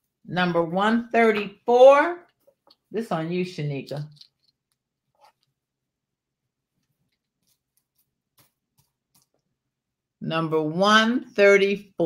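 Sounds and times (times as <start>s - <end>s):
necklace and packaging clicks: 3.9s - 5.6s.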